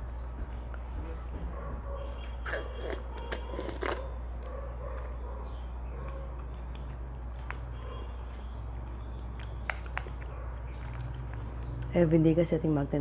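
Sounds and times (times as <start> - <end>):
sucking through a straw: 2.4 - 4.0.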